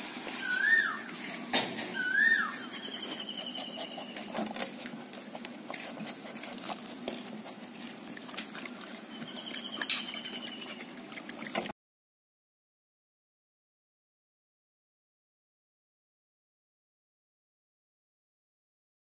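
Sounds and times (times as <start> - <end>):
puppies crunching dry kibble: 0.0 - 1.6, 2.9 - 11.7.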